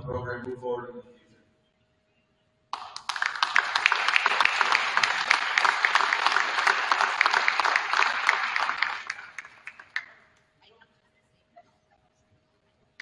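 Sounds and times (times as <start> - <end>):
audience applauding: 2.8 - 10.2.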